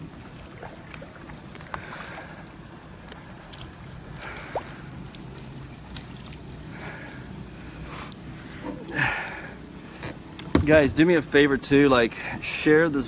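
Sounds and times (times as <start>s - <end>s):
paddle strokes splashing: 0.0s - 7.0s
water lapping against hull: 0.0s - 11.4s
small knocks: 10.0s - 11.0s.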